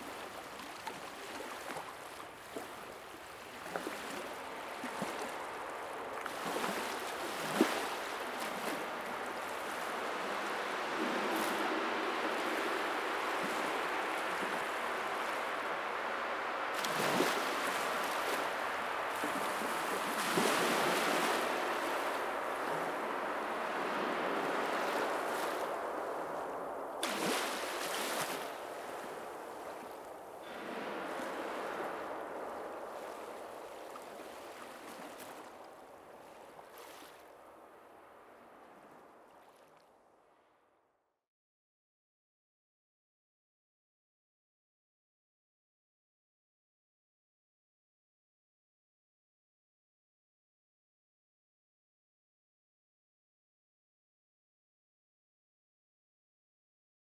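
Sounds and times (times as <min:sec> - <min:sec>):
rushing water-like noise: 0:00.0 - 0:39.8.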